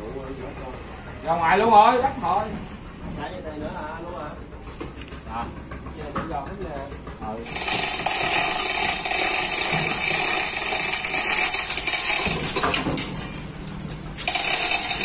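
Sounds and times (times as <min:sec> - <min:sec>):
metallic mechanical rattle: 0:07.4 - 0:15.0.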